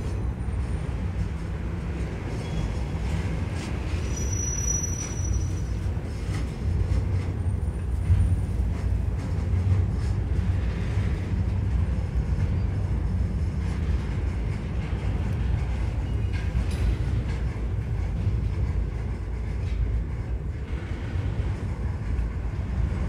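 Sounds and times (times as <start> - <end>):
freight train rumbling past: 0.0 - 23.0.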